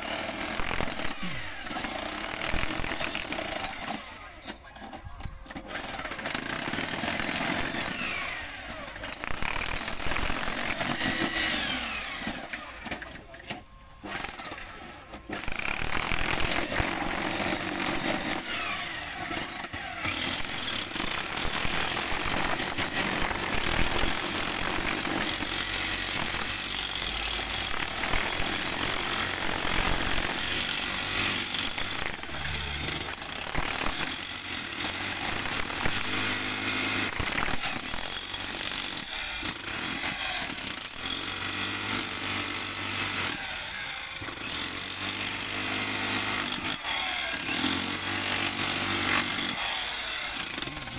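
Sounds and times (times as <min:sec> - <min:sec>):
jackhammer hammering rock: 0:00.0 - 0:04.1, 0:05.7 - 0:12.9, 0:14.0 - 0:50.9.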